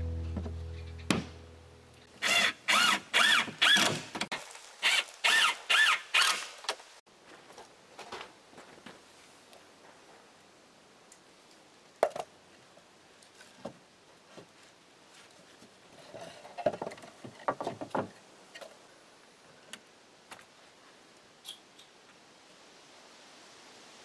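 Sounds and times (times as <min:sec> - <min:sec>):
wooden boxes knocking and scraping: 0:16.5 - 0:18.2.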